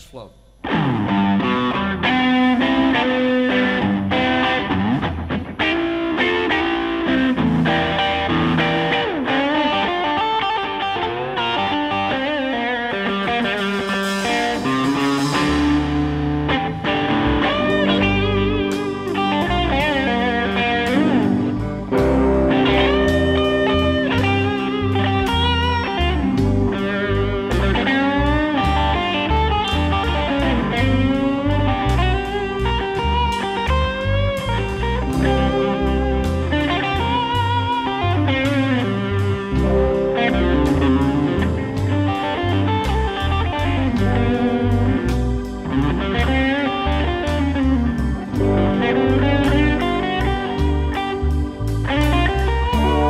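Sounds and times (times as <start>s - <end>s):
drums: 0.0s - 10.5s, 11.8s - 53.0s
bass: 0.0s - 53.0s
keyboard: 0.0s - 53.0s
lead electric guitar bending notes: 0.0s - 53.0s.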